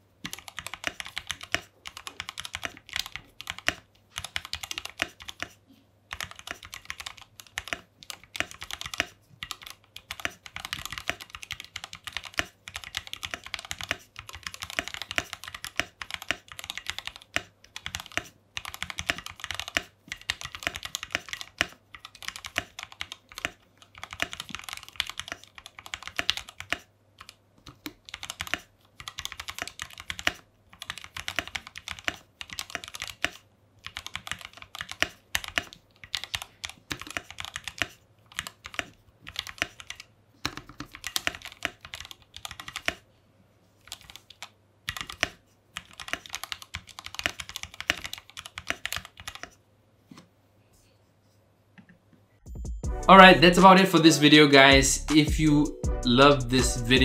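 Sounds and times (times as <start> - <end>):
mechanical keyboard typing: 0.2 - 43.0, 43.8 - 49.5.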